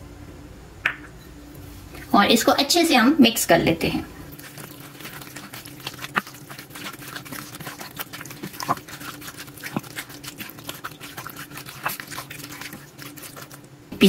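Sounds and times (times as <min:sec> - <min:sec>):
spoon stirring wet food in bowl: 0:04.3 - 0:14.0.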